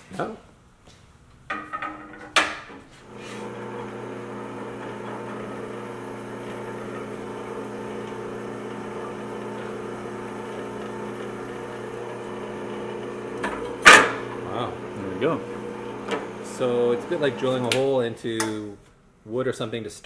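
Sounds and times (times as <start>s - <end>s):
drill press motor humming: 3.0s - 18.0s.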